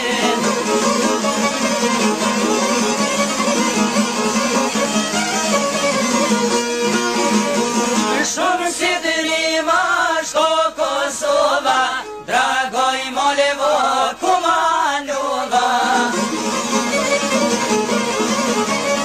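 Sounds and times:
men singing together: 0.0 - 0.8, 8.1 - 16.2
held string accompaniment: 0.0 - 19.0.

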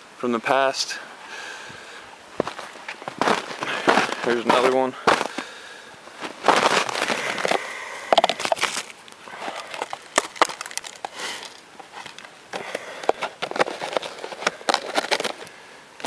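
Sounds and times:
crunching and rustling in snow: 2.4 - 12.2.

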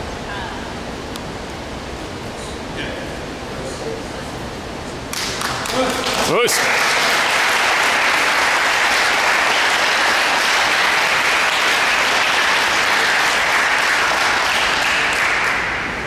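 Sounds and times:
small group applauding: 5.1 - 16.0.

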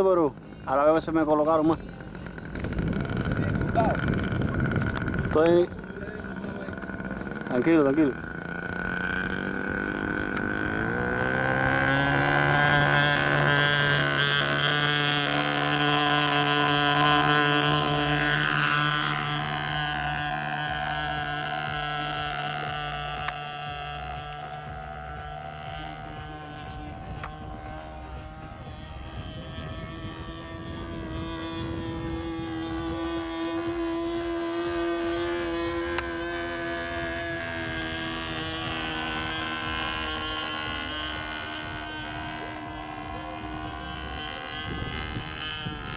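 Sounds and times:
model plane motor: 0.0 - 45.9
wind on microphone: 1.7 - 45.9.

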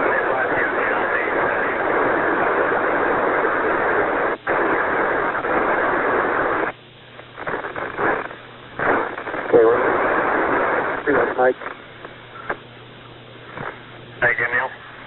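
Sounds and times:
radio static hiss: 0.0 - 15.0.

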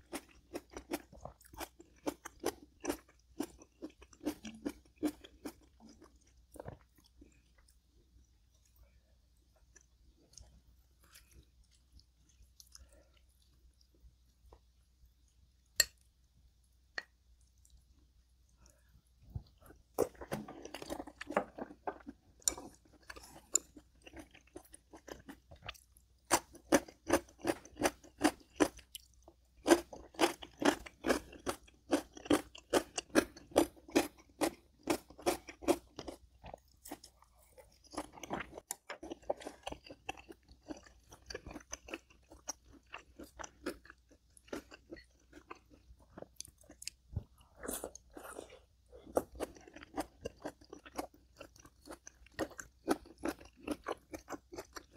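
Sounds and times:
person chewing crunchy food: 0.0 - 16.1, 17.0 - 54.9.

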